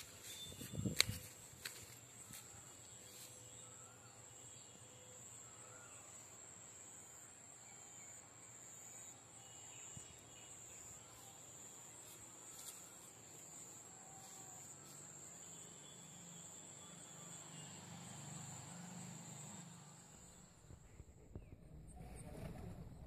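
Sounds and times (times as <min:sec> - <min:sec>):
faint bird chirps: 0:00.0 - 0:13.0
high-pitched insect drone: 0:03.2 - 0:20.4.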